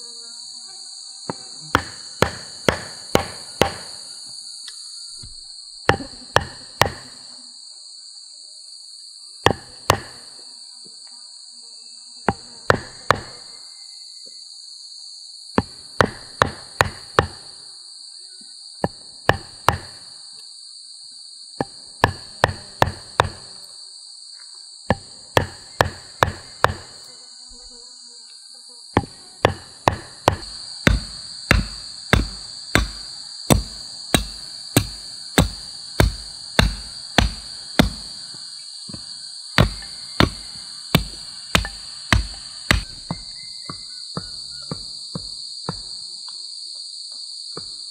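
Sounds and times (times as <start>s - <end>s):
high insect drone: 0.0s - 47.9s
hatchet chopping wood: 1.3s - 4.0s, 5.2s - 7.2s, 9.4s - 10.2s, 12.3s - 13.4s, 15.6s - 17.5s, 18.8s - 20.0s, 21.6s - 23.6s, 24.9s - 27.0s, 29.0s - 38.3s, 38.9s - 46.0s.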